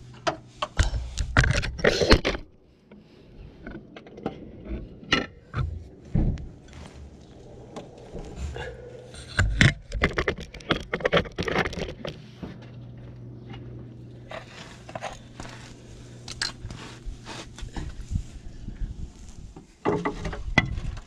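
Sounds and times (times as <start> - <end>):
steady low hum: 0.0 - 21.0
camera rubbing on tarmac: 14.3 - 18.2.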